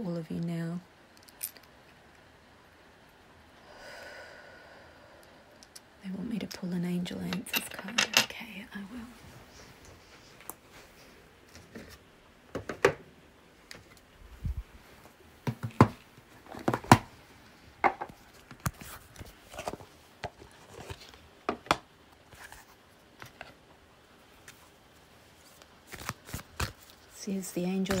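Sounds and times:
cards being shuffled: 22.2 - 23.6, 25.4 - 27.1, 27.8 - 28.0.

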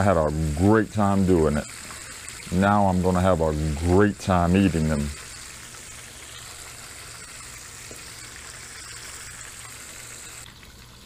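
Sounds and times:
fish sizzling in oil: 5.0 - 10.5.

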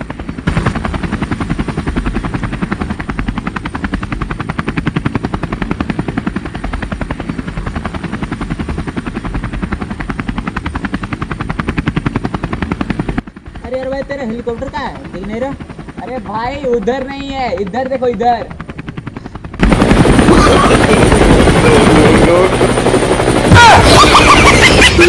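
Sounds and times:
helicopter rotor blades chopping: 0.0 - 25.0.

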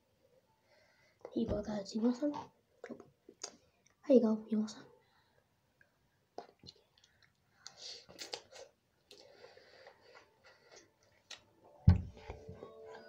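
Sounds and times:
person eating noodles: 6.4 - 11.4.

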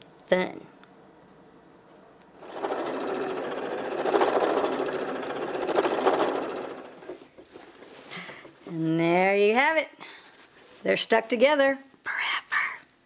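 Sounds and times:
sewing machine stitching: 2.4 - 7.6.

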